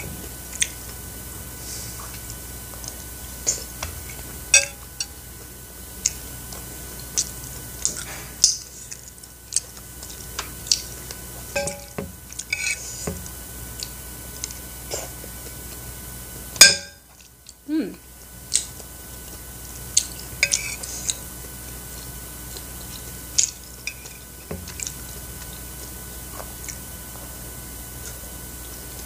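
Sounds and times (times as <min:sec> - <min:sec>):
metal spoon clinking on plate: 0:11.6 - 0:12.0.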